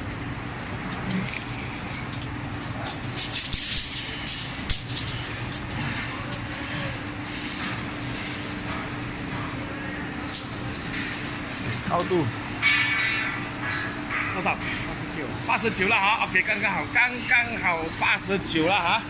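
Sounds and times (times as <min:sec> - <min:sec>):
steady low hum: 0:00.0 - 0:19.0
tape measure clicking and scraping: 0:02.9 - 0:05.7.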